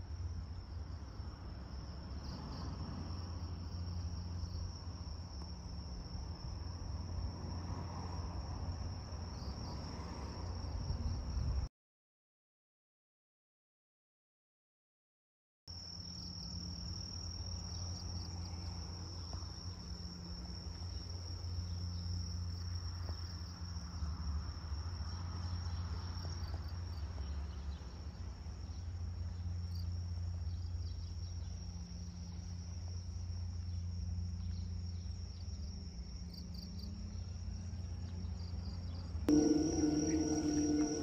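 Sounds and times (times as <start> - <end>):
constant low rumble: 16.6 - 41.0
insects trilling: 29.5 - 41.0.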